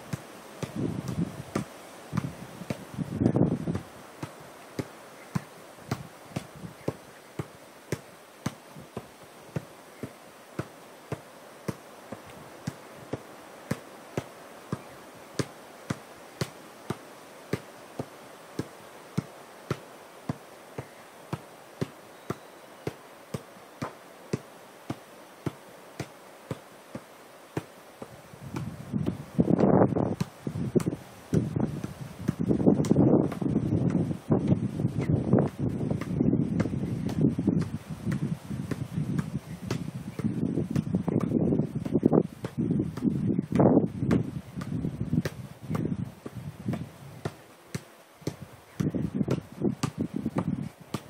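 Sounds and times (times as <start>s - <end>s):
football thudding off foot: 0.6s - 9.7s.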